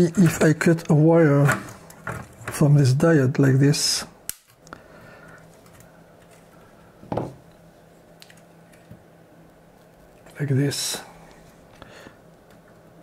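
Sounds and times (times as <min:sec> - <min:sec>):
faint steady hum: 0:00.0 - 0:13.0
sharp snap of wire cut: 0:04.3 - 0:04.5.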